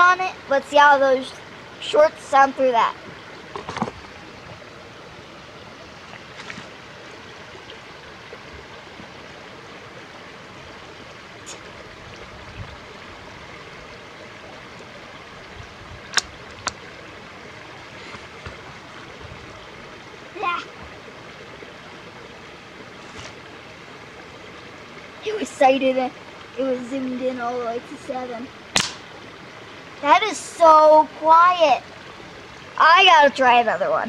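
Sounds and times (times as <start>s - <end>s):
steady rushing hiss: 0.0s - 33.9s
suppressed rifle shot: 28.8s - 29.0s.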